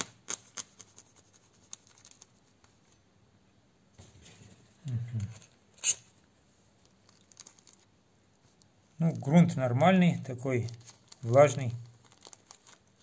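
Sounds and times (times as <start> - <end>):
plastic bag rustling: 10.6 - 13.0.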